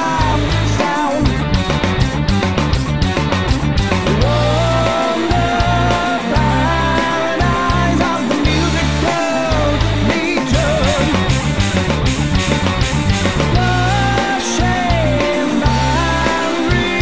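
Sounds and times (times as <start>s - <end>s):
man singing: 0.0s - 1.5s, 4.1s - 11.5s, 13.5s - 17.0s
heavy cymbal and drum strokes: 0.0s - 17.0s
rock band playing: 0.0s - 17.0s.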